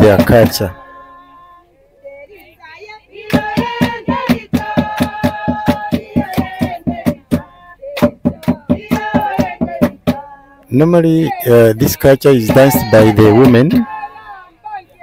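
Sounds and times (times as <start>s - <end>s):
rhythmic hand clapping: 0.0s - 0.8s, 3.2s - 10.4s
group singing: 0.0s - 15.0s.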